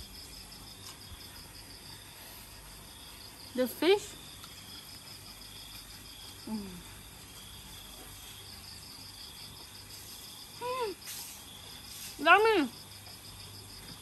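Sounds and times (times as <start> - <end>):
crickets chirring: 0.0 - 14.0
woman humming murmurs: 6.4 - 7.0.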